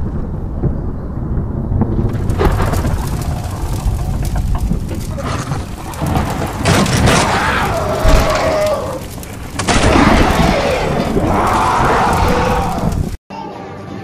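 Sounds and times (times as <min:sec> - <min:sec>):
deep booming rumble: 0:00.0 - 0:13.2.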